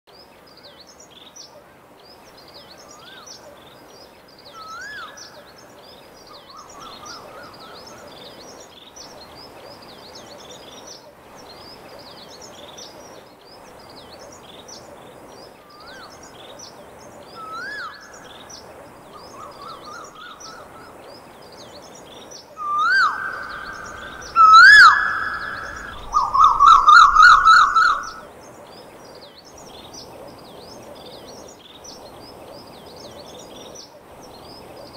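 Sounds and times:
bird-like chirping: 22.6 - 28.3.

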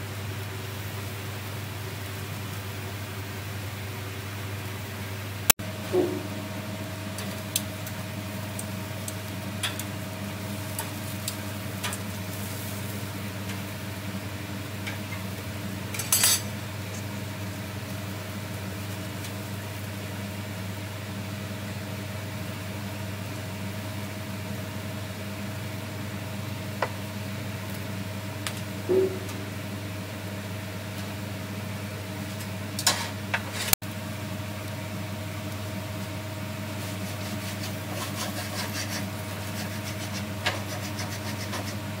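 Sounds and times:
low mechanical hum: 0.0 - 42.0
dishes and utensils clinking: 16.0 - 16.5.

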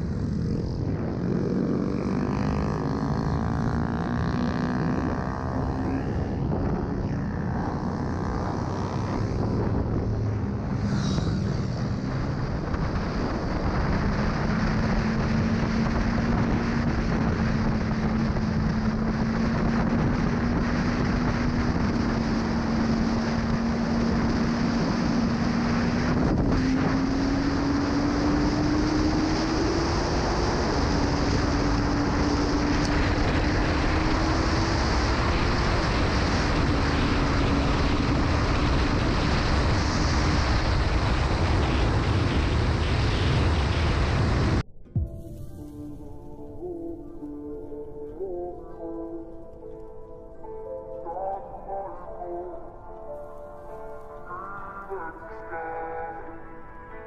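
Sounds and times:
rush of wind: 0.0 - 48.2
motorcycle engine running at speed: 0.0 - 49.9.

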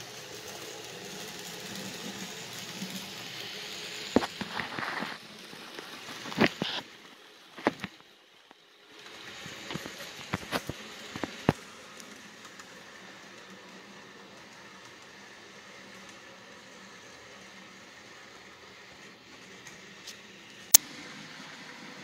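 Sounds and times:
faint train running noise: 0.0 - 22.0
model train wheels clicking: 0.0 - 22.0.

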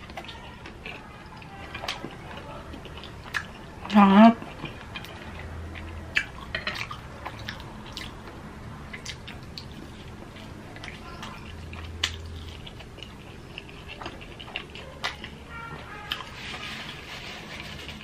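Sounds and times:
person chewing fried chicken: 0.0 - 18.0.

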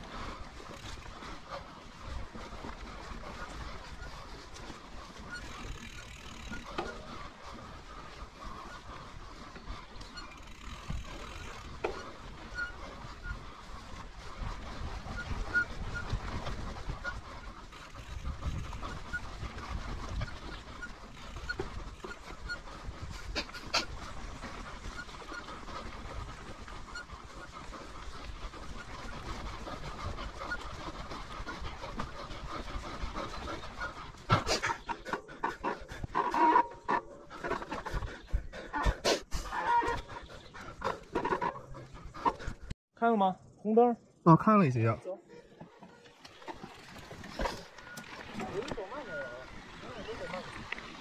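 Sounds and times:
bike tyre and drivetrain noise: 0.0 - 42.7, 45.2 - 51.0
rider panting: 0.0 - 42.8, 45.2 - 51.0
wind rumble on microphone: 10.7 - 34.5.

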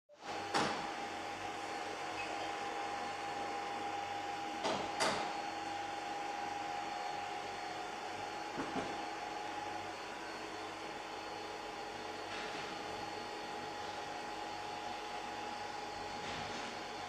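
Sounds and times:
mechanical hum and hiss: 0.2 - 17.0.

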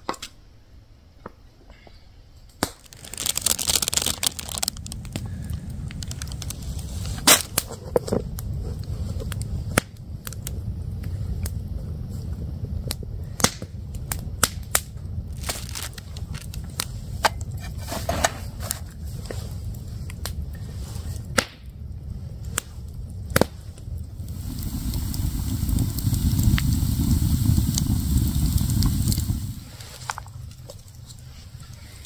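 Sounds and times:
campfire crackling and popping: 2.5 - 32.0
hissing rush: 2.9 - 7.7, 23.7 - 32.0
low rumble: 3.0 - 32.0.

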